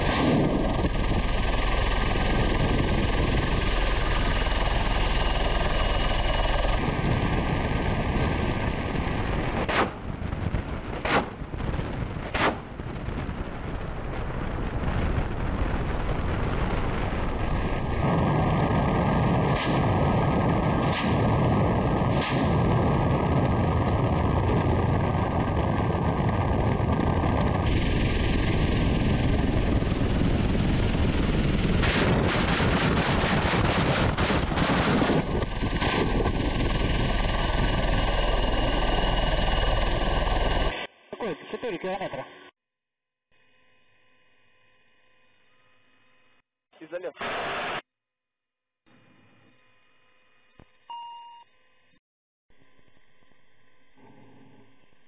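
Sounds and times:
rushing wind: 0:00.0 - 0:40.8
helicopter rotor and engine noise: 0:00.0 - 0:40.9
rocket launch bangs: 0:07.0 - 0:13.4, 0:17.8 - 0:29.8.

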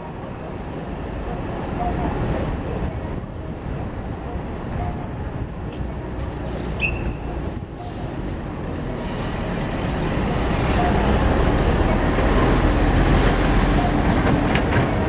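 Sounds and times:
electric train rumbling: 0:00.0 - 0:15.0
high squeal: 0:06.4 - 0:07.3.

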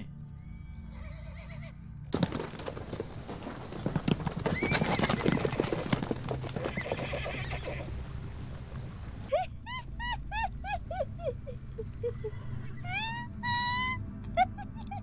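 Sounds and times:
horse whinnying: 0:00.9 - 0:01.7, 0:04.0 - 0:08.1
horses galloping hoofbeats: 0:02.1 - 0:09.4.

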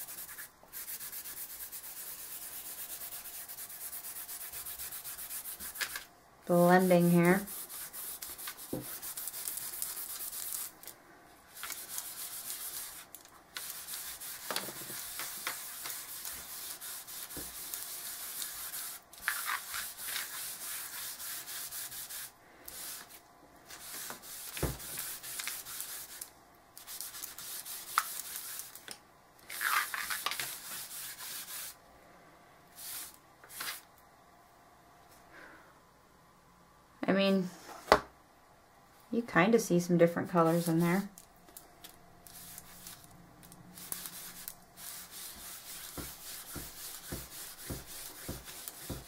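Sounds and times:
wipe rubbing on board: 0:11.6 - 0:23.1, 0:43.8 - 0:49.0.

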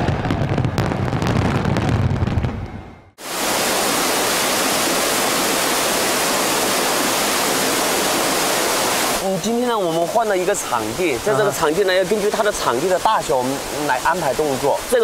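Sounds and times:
steady rushing hiss: 0:03.2 - 0:15.0.

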